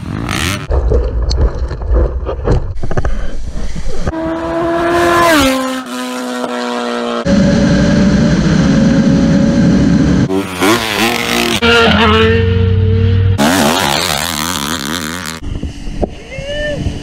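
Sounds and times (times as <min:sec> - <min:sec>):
dirt bike engines revving: 0:03.7 - 0:17.0
motorcycle engine running: 0:03.7 - 0:17.0.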